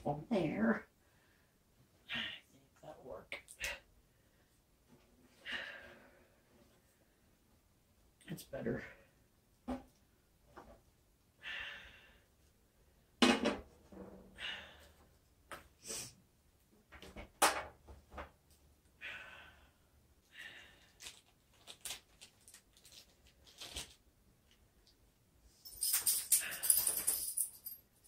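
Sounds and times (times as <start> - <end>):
soft breathy hisses: 15.8 - 16.2.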